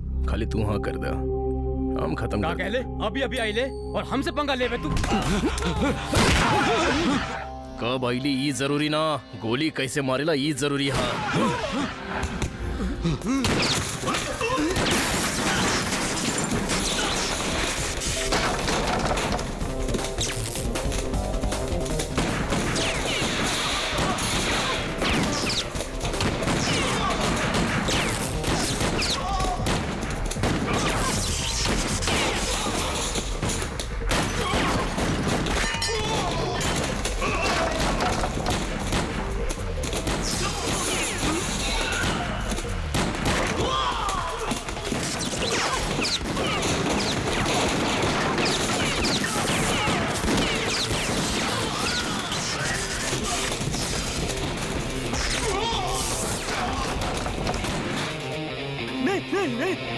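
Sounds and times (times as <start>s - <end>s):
rapid gunfire: 13.5s - 58.2s.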